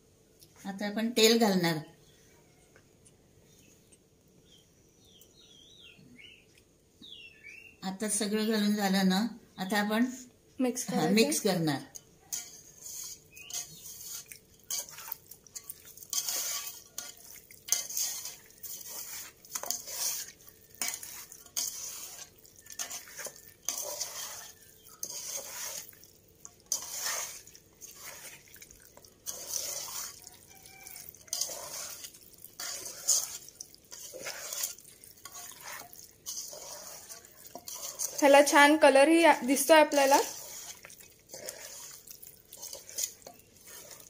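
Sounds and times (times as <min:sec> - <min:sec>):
hands squishing meat in marinade: 0:12.3 - 0:38.6, 0:39.5 - 0:44.0.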